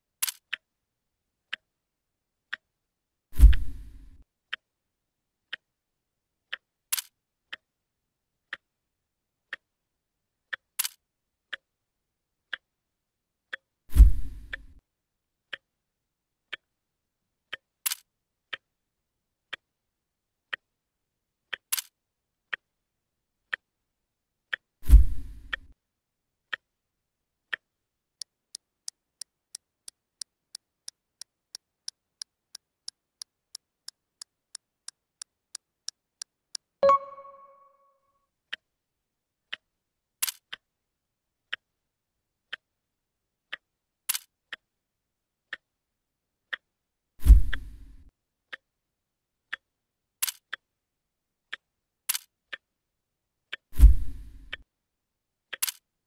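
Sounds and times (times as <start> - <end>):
clock ticking: 12.5 - 12.7
short ding: 36.8 - 37.9.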